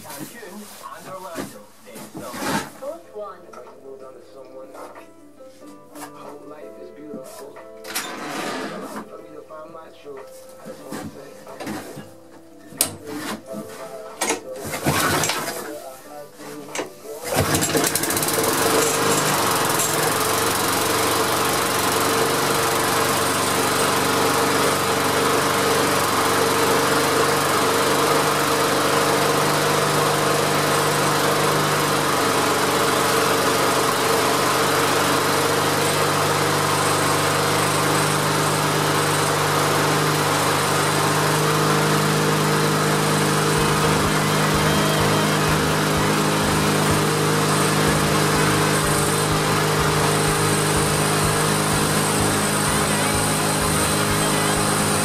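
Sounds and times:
lawnmower engine running: 14.7s - 15.8s, 16.7s - 55.0s.

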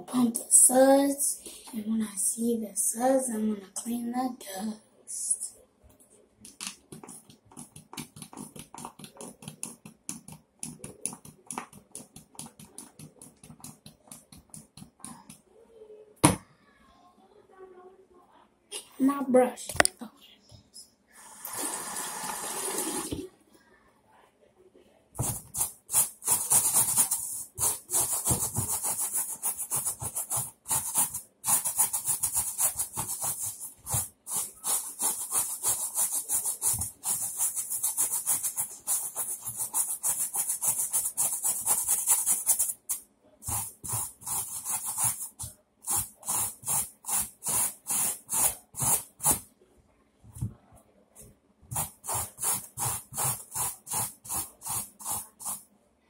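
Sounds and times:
brush scrubbing a sneaker: 25.2s - 42.8s, 43.4s - 49.4s, 51.7s - 55.6s.

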